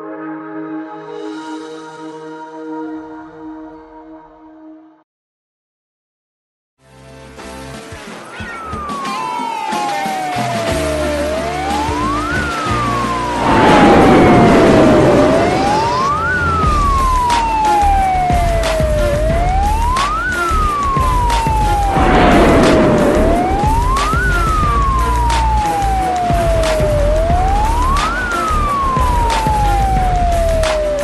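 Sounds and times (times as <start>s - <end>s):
ambulance siren wailing: 8.3s - 31.0s
rush of noise: 13.0s - 17.9s, 21.5s - 31.0s.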